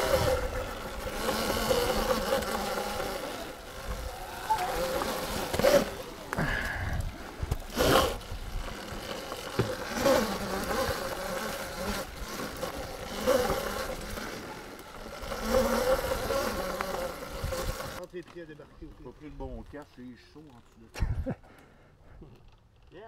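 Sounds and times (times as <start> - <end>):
rushes of noise: 0.0 - 18.0
electric motorbike motor whining: 0.0 - 19.8.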